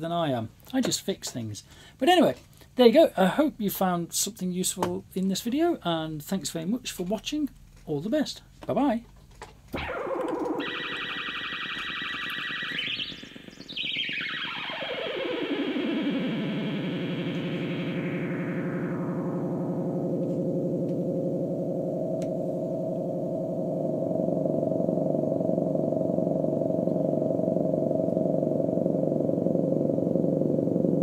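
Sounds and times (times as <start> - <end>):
buzzy synthesiser note: 9.8 - 31.0.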